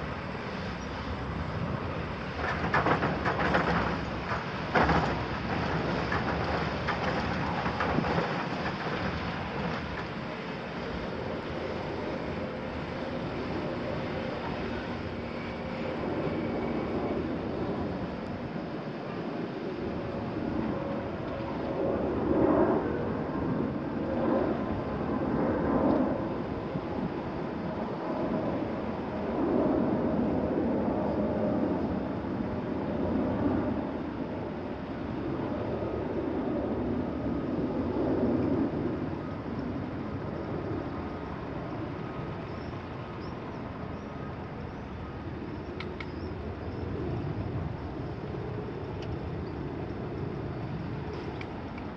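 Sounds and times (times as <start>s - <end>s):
distant diesel machinery working: 0.1s - 19.3s.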